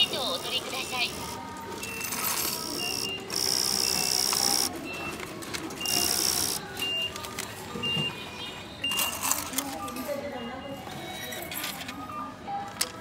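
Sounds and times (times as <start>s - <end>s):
shop background music: 0.0s - 13.0s.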